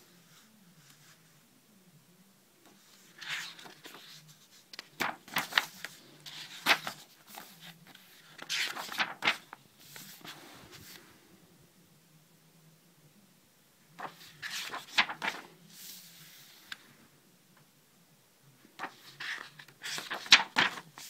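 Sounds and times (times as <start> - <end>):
paper pages rustling and flicking: 2.7 - 11.0, 14.0 - 16.8, 18.8 - 21.0.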